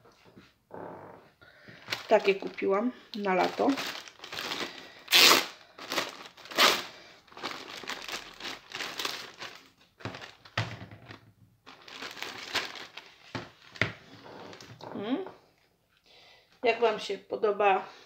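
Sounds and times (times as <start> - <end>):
plastic bag crinkling: 1.7 - 14.7.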